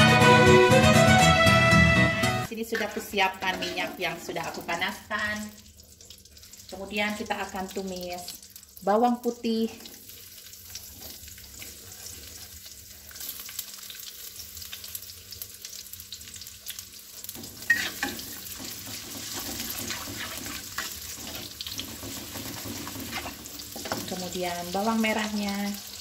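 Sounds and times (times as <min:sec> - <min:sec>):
garlic sizzling in hot oil: 0:02.4 - 0:26.0
metal spatula scraping a wok: 0:02.6 - 0:04.1, 0:17.3 - 0:24.1.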